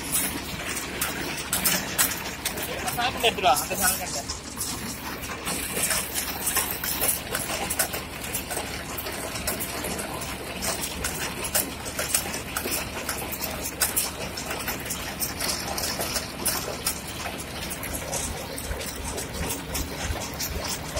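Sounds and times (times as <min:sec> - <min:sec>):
baler chains clattering: 0:00.0 - 0:20.9.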